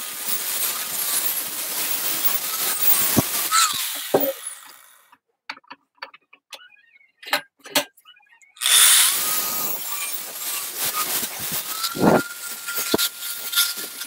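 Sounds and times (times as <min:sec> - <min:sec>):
angle grinder cutting steel: 0:00.0 - 0:05.2, 0:08.6 - 0:14.0
grinder disc running down: 0:00.1 - 0:05.0
clicks and knocks: 0:05.5 - 0:06.6.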